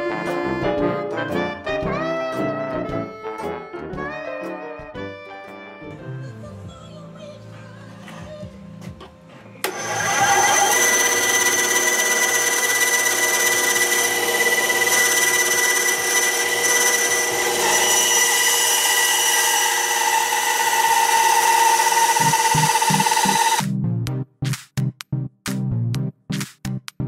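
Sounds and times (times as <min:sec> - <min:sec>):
band saw whining: 0:09.6 - 0:23.6
saw blade cutting wood: 0:09.6 - 0:23.6.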